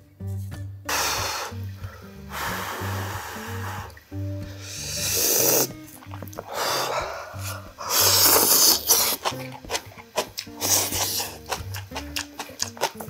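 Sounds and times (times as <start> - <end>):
background music with bass line: 0.0 - 13.0
person slurping food: 0.9 - 1.6, 4.6 - 13.0
wet chewing clicks: 5.0 - 13.0.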